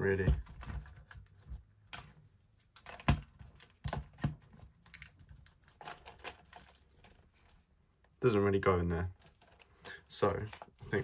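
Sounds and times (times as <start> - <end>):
plastic clicks and knocks: 2.8 - 7.2.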